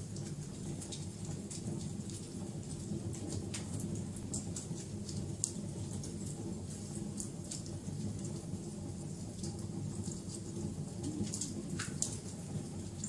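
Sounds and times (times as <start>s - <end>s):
wood fire crackling: 0.0s - 13.0s.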